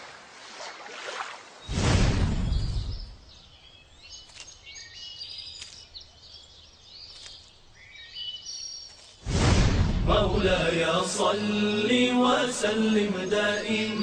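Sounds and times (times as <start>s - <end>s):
birds chirping: 1.4s - 9.2s, 10.4s - 14.0s
loud rush of noise: 9.3s - 11.0s.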